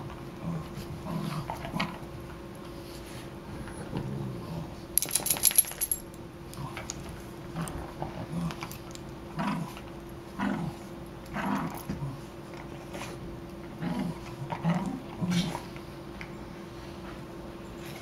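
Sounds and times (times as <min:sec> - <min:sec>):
small dogs growling: 0:00.4 - 0:02.1, 0:03.4 - 0:04.8, 0:06.5 - 0:15.8
metal collar tag jingling: 0:05.0 - 0:06.2.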